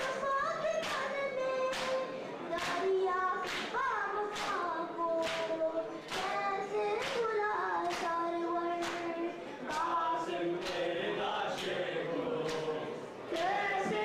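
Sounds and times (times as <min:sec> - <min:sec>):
crowd beating chests in unison: 0:05.2 - 0:07.2, 0:07.8 - 0:14.0.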